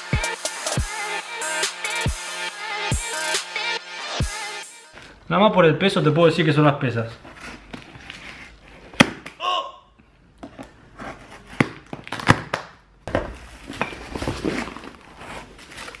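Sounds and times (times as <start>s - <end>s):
cardboard and plastic rustling: 7.2s - 9.0s, 13.1s - 16.0s.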